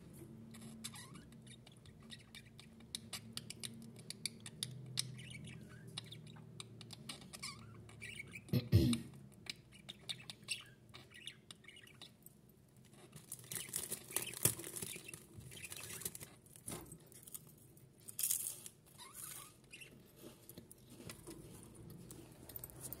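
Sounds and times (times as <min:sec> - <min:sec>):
budgerigars clicking and scratching: 0:00.5 - 0:08.5, 0:09.2 - 0:12.2, 0:12.8 - 0:16.7
soft bird chirps: 0:00.5 - 0:08.5, 0:09.4 - 0:12.2.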